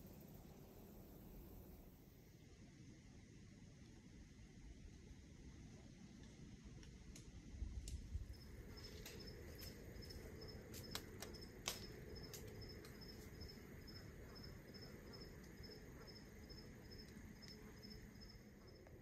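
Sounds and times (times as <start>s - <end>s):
insect chirping: 8.2s - 19.0s.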